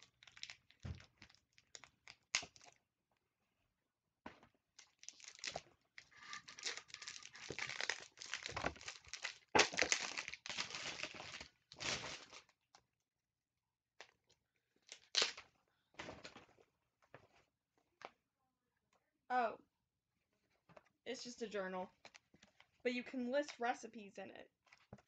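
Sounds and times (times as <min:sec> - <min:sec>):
plastic wrapper crinkling and tearing: 0:00.0 - 0:02.8, 0:04.8 - 0:12.6, 0:14.8 - 0:15.4
book rustling: 0:04.8 - 0:12.5.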